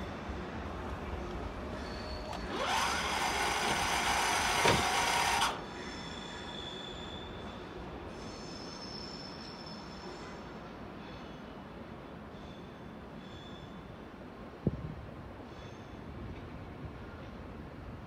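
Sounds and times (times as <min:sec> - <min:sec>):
train high whine: 0:00.0 - 0:14.2
train hissing squeal: 0:01.8 - 0:02.9, 0:05.3 - 0:11.5.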